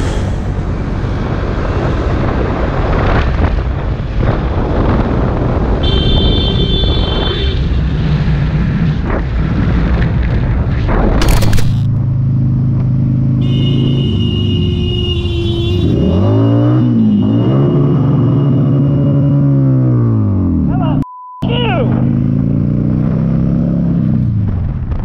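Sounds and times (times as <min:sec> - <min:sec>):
wind noise on microphone: 0:00.4 - 0:11.5
sharp loud burst: 0:11.2 - 0:11.9.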